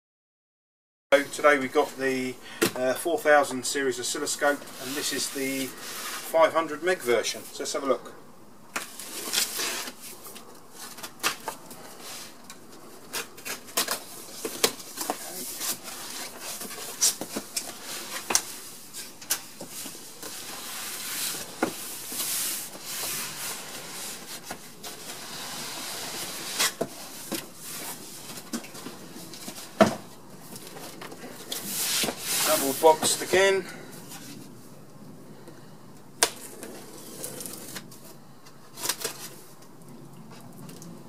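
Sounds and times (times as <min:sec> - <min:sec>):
cardboard scraping and rubbing: 0:04.3 - 0:06.5, 0:08.8 - 0:34.6, 0:36.3 - 0:39.5
cardboard flaps folding: 0:08.8 - 0:33.4
box cutter slitting tape: 0:25.2 - 0:26.9.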